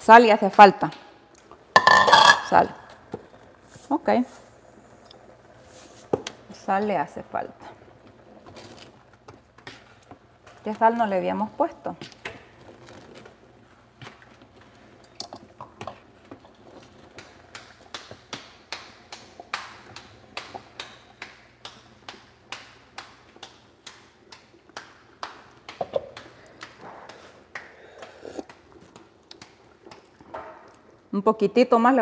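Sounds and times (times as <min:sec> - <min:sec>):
hands patting dough: 0:16.8 - 0:30.4.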